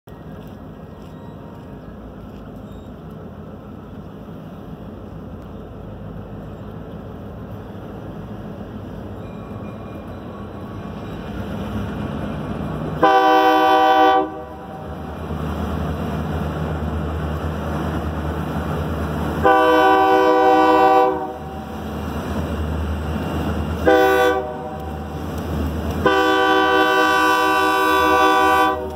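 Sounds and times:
locomotive rumble: 0.0 - 28.9
locomotive air horn blasts: 13.0 - 14.8, 19.4 - 21.6, 23.8 - 25.0, 26.0 - 28.9.

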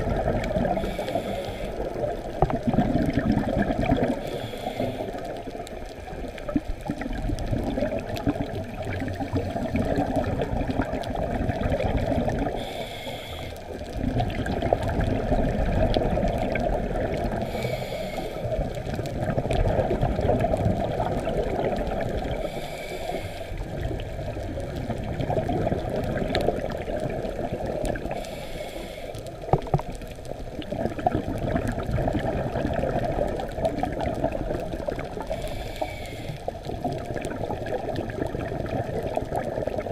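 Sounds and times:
gurgling exhaled bubbles: 0.0 - 39.9
regulator inhale hiss: 0.6 - 2.2, 4.1 - 5.8, 12.4 - 13.8, 17.4 - 18.9, 22.3 - 23.8, 28.0 - 29.7, 35.2 - 36.7.

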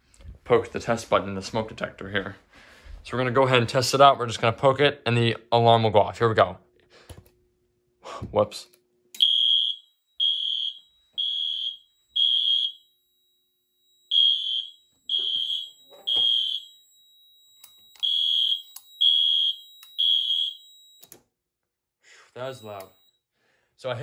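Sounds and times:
high-pitched fire alarm beeping: 9.2 - 21.1, 22.4 - 23.2.

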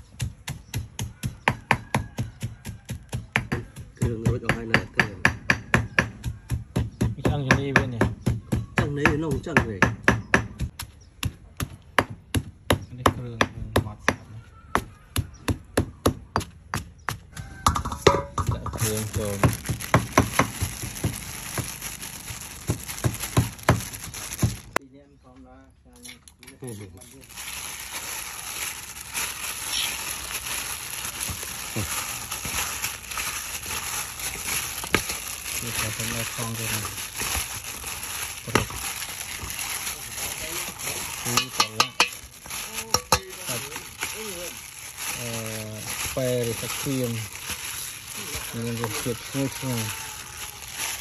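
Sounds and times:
stone pestle pounding in mortar: 0.1 - 14.2, 14.8 - 21.7, 41.3 - 42.2
plastic bag crinkling: 18.2 - 24.8, 26.9 - 51.0
wet squishing of meat: 18.9 - 24.8, 27.2 - 51.0.

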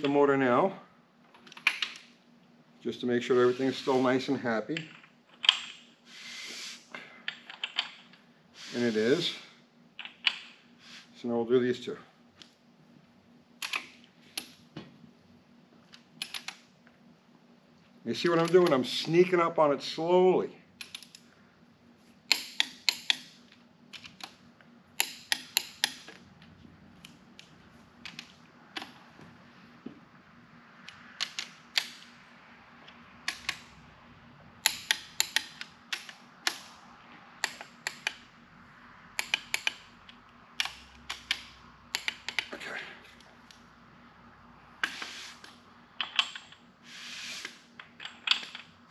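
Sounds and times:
torque wrench clicks: 34.6 - 36.7, 39.2 - 39.8.

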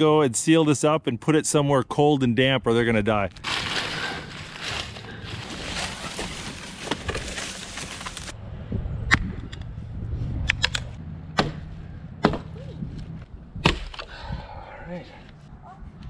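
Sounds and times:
axe chopping wood: 11.4 - 12.6, 13.6 - 14.1.

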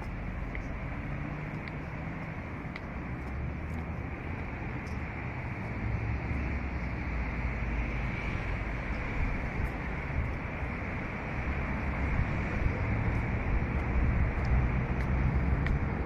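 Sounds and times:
city traffic hum: 0.0 - 16.0
wind buffeting microphone: 8.4 - 16.0.

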